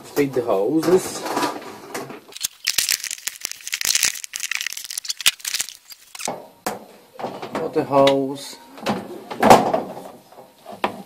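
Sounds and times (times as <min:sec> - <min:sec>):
plastic hoses rattling and scraping: 0:02.3 - 0:06.3.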